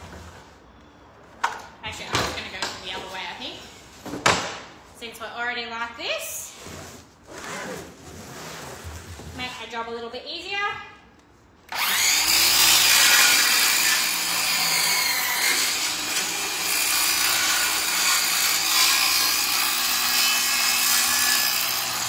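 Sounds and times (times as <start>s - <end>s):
circular saw cutting plywood: 11.7s - 22.0s
saw blade winding down: 11.7s - 22.0s.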